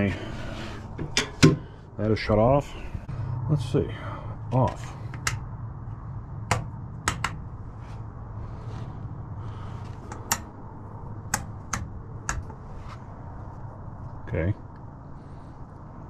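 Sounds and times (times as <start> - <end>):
steady low hum: 0.0 - 16.0
sharp clicks and taps: 6.5 - 7.4, 10.1 - 10.5, 11.3 - 12.6.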